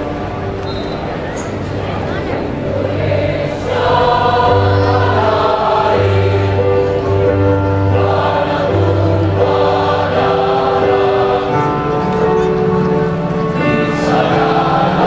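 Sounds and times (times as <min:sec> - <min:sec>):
women's choir singing: 0:02.6 - 0:12.4, 0:13.0 - 0:15.0.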